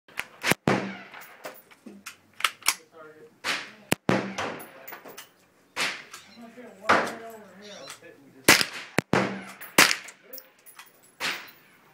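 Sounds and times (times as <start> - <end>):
rifle shots with echo: 0.3 - 1.4, 3.4 - 4.8, 8.5 - 10.2.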